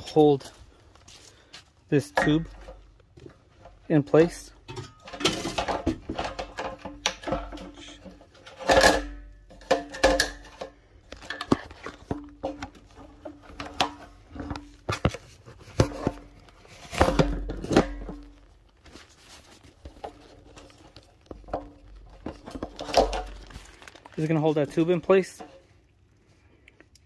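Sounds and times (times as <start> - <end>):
hard plastic knocking and scraping: 4.6 - 18.5, 19.5 - 23.8.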